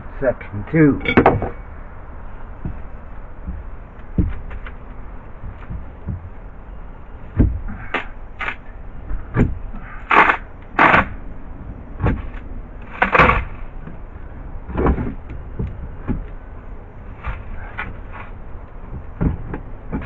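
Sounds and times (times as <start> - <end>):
wood scraping and creaking: 1.0 - 20.0
wood knocking and cracking: 2.5 - 6.4, 18.6 - 20.0.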